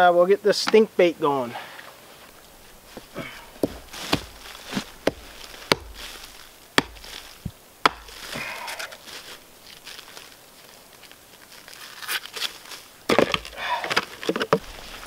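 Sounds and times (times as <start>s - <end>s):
rustling handling: 1.9s - 15.0s
hatchet chopping fish on a log: 5.0s - 6.0s, 6.8s - 7.2s, 7.8s - 8.2s.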